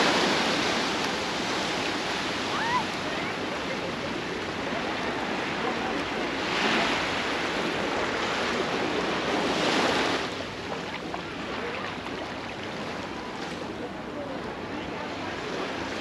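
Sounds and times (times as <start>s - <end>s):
sea waves breaking on beach: 0.0s - 16.0s.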